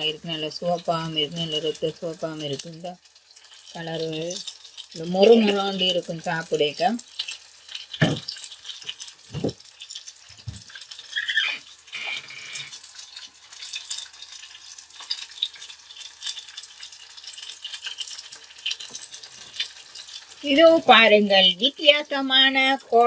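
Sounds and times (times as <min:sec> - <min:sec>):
oil frying and crackling: 0:00.0 - 0:23.0
dull thumps: 0:08.0 - 0:08.3
brief squeak: 0:11.1 - 0:12.7.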